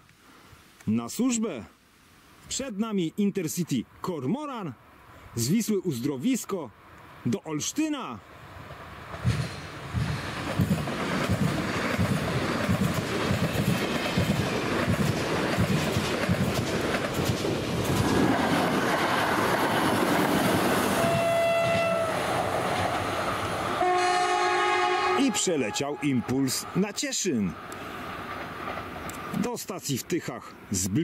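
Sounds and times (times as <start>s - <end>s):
train wheels clattering: 9.1s - 21.9s
train horn: 21.0s - 22.2s, 23.8s - 26.6s.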